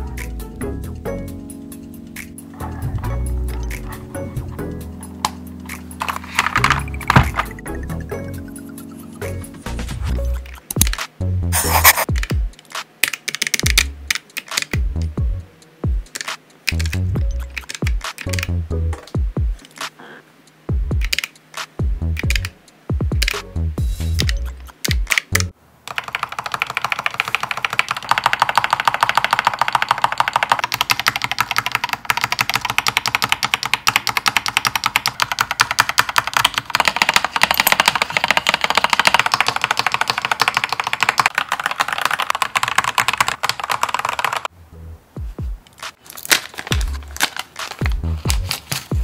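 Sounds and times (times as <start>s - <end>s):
music with a beat: 0.0s - 13.0s, 13.6s - 25.2s, 45.2s - 46.0s, 46.7s - 49.0s
mechanical keyboard clacking: 5.2s - 7.6s, 10.6s - 11.1s, 11.7s - 18.5s, 20.9s - 23.4s, 24.2s - 44.5s, 45.7s - 49.0s.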